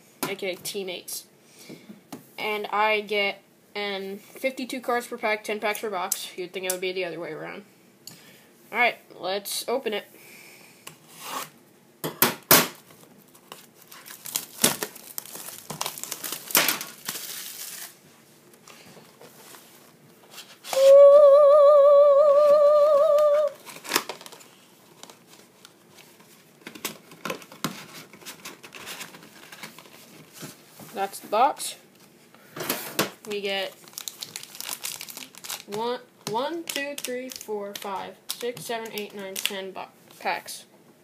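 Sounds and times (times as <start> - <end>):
shrink wrap tearing and crinkling: 13.3 - 18.0, 22.8 - 30.3, 33.2 - 35.8, 36.6 - 39.6
loud wavering tone: 20.7 - 23.5.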